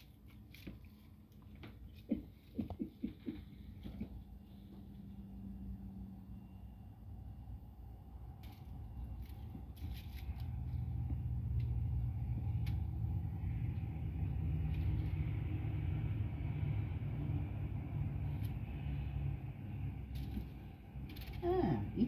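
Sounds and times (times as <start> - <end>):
vehicle engine rumbling: 0.0 - 22.0.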